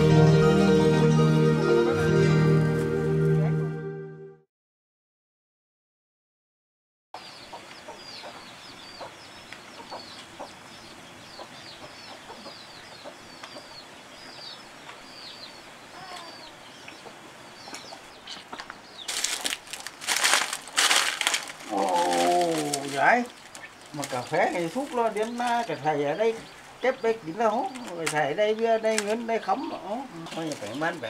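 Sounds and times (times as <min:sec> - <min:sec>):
small bird chirping: 0:07.2 - 0:19.4, 0:22.6 - 0:28.2
chicken clucking: 0:11.3 - 0:14.4
dry leaves rustling and crackling: 0:19.0 - 0:25.9, 0:30.2 - 0:31.0.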